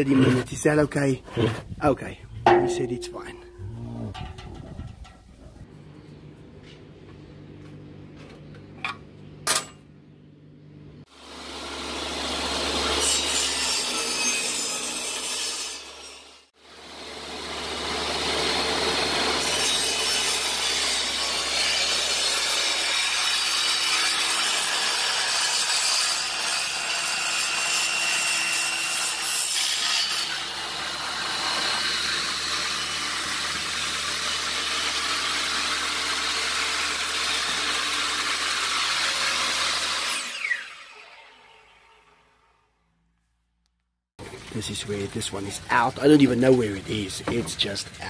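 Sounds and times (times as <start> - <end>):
electric saw cutting wood: 11.1 - 42.8.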